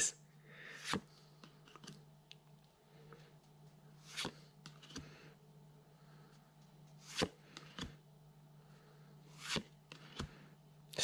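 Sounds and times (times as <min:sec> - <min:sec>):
cards swishing and snapping: 0:04.0 - 0:05.1, 0:06.9 - 0:07.9.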